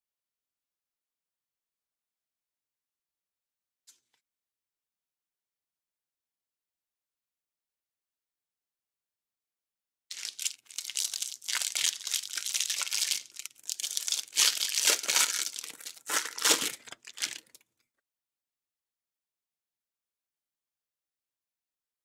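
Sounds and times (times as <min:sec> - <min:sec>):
cellophane wrapper crinkling and tearing: 0:10.1 - 0:17.6.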